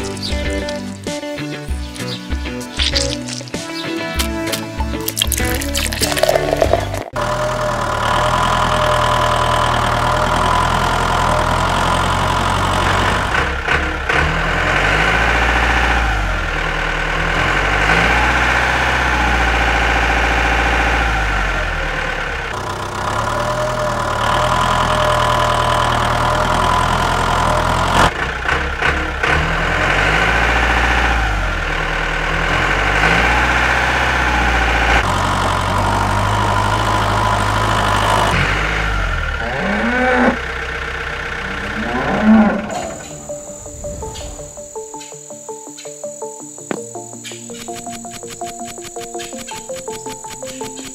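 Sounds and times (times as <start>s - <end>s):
tractor engine running: 0.0s - 45.0s, 46.6s - 50.9s.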